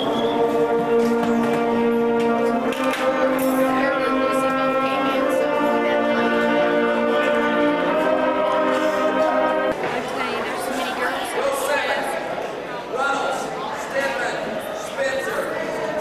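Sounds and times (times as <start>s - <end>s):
processional wind instrument music: 0.0s - 11.0s.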